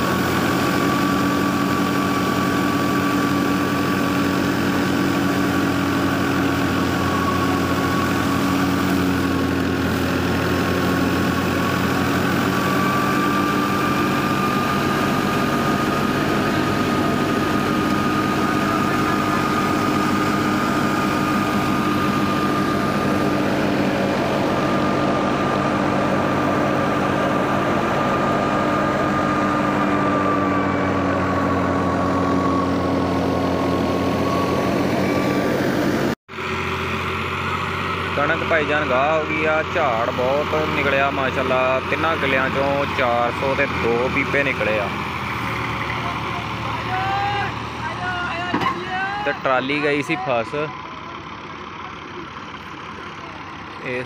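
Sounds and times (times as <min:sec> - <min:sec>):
tractor engine driving a thresher: 0:00.0 - 0:54.0.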